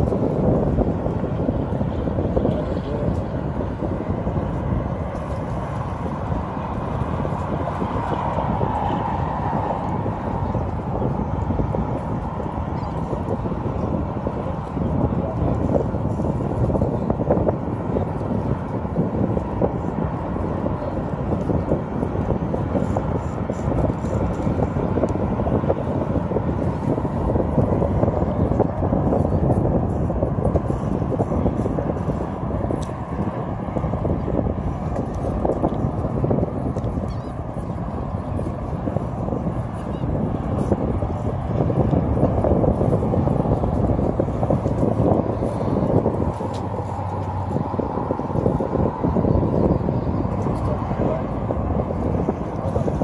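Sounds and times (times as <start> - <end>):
wind buffeting microphone: 0.0 - 53.0.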